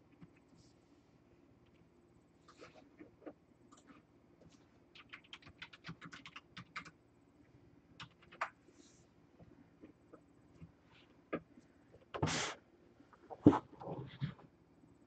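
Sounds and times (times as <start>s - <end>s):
typing on computer keyboard: 4.9s - 7.0s, 8.0s - 8.6s.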